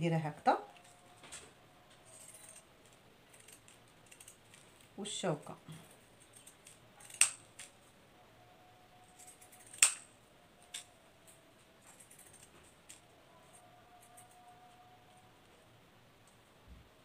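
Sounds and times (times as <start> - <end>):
scissors blades snipping: 6.4 - 7.7, 9.5 - 10.1.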